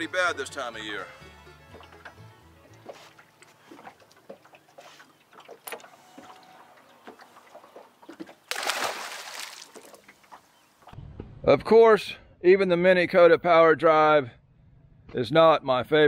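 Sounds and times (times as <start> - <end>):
fish splashing into water: 8.4 - 10.5.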